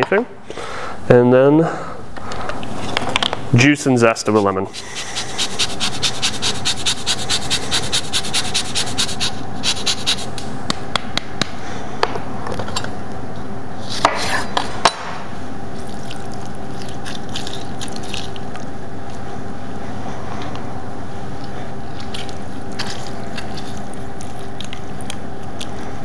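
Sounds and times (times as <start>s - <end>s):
faint steady hum: 0.0s - 26.0s
lemon scraped on rasp grater: 4.7s - 10.4s.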